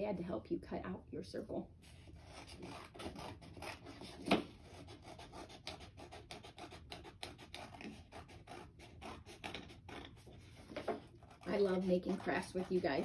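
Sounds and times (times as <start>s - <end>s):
scissors snipping paper: 11.2s - 13.0s.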